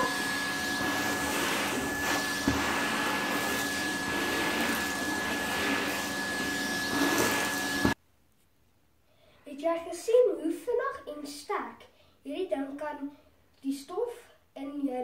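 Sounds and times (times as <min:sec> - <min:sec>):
vacuum cleaner running: 0:00.0 - 0:08.0.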